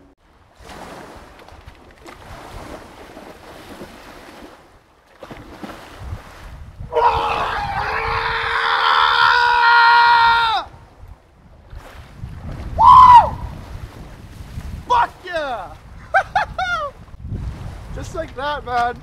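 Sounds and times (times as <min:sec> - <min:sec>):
sea water sloshing and splashing: 0:00.2 - 0:06.9, 0:10.8 - 0:12.8, 0:13.4 - 0:15.9
man yelling: 0:06.9 - 0:10.7, 0:14.8 - 0:15.8.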